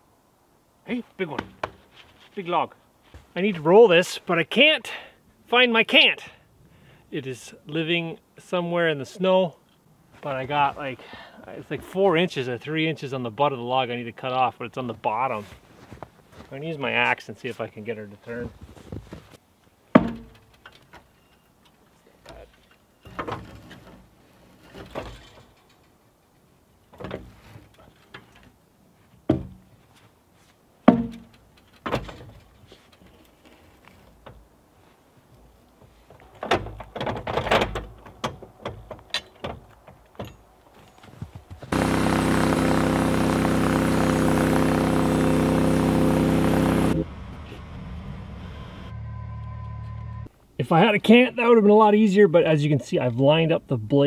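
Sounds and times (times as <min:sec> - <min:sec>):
axe thunking against log: 0:20.0 - 0:20.4, 0:30.9 - 0:31.3
gas engine running: 0:41.7 - 0:50.3.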